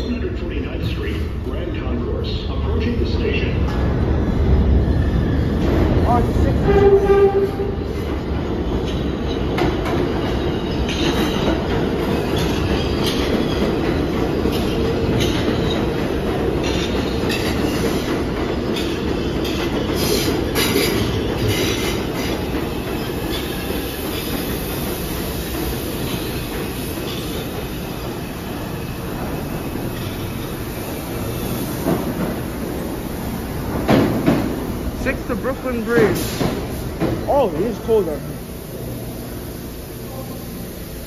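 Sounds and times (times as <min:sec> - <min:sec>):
train running noise: 0:00.0 - 0:41.0
train wheels clicking over rail joints: 0:06.7 - 0:38.1.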